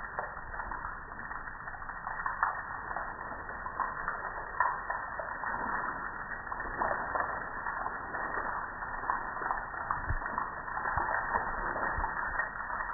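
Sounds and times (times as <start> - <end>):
soap foam fizzing and crackling: 0.0 - 12.9.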